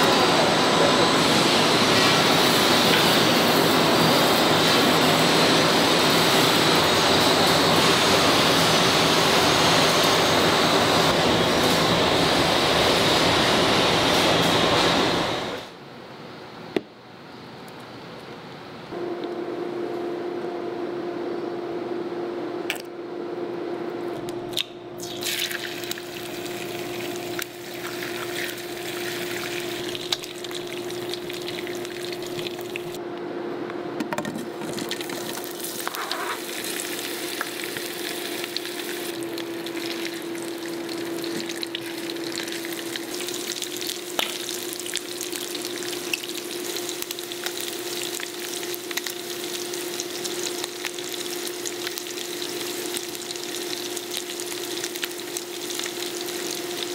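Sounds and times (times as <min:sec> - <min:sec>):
food sizzling in a frying pan: 0:25.0 - 0:33.0, 0:35.0 - 0:56.9.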